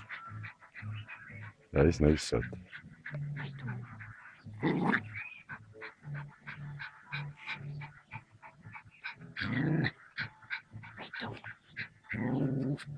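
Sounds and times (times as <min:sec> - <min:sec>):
small dog growling and yipping: 0:04.6 - 0:05.2, 0:09.4 - 0:10.3, 0:12.1 - 0:12.9.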